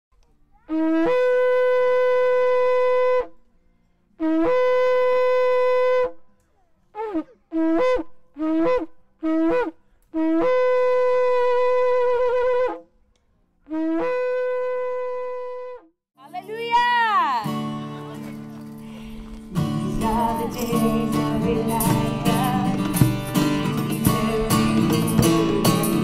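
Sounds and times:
shofar blasts: 0:00.6 - 0:03.4, 0:04.2 - 0:06.2, 0:06.9 - 0:12.9, 0:13.7 - 0:15.9, 0:19.8 - 0:26.0.

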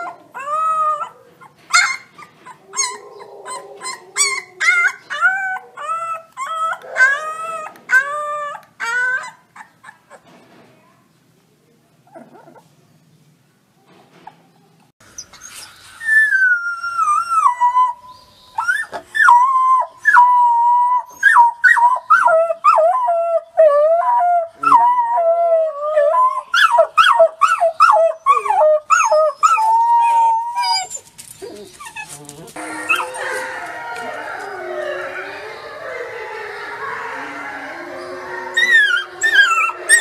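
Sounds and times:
wolf pups howling: 0:00.0 - 0:09.8, 0:16.0 - 0:40.0
wolf pups yipping: 0:00.0 - 0:10.2, 0:25.9 - 0:40.0.

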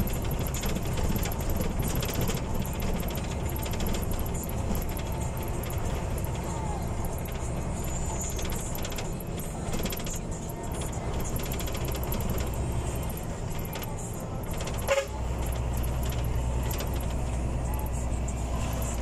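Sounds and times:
bus engine and road noise: 0:00.0 - 0:19.0
horn toot: 0:14.8 - 0:15.3.

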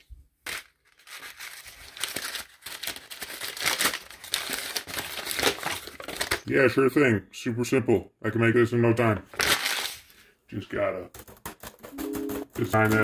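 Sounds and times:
paper crumpling: 0:00.0 - 0:06.5, 0:09.3 - 0:10.2.

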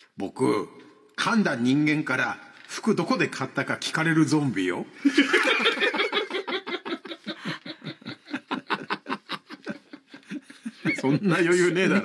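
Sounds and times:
man laughing hard: 0:05.2 - 0:11.2.

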